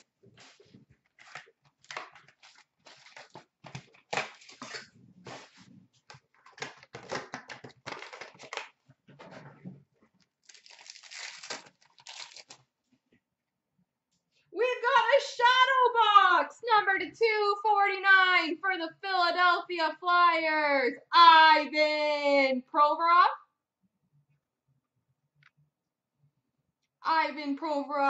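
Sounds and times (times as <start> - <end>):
card wrappers tearing and crinkling: 0.4 - 5.5, 6.5 - 8.8, 10.4 - 12.6.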